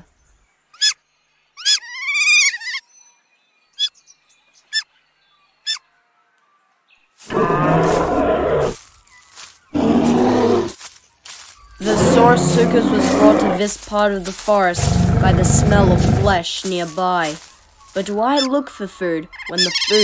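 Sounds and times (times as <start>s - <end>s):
loud animal roars: 7.3s - 8.8s, 9.8s - 10.8s, 11.8s - 13.8s, 14.8s - 16.4s.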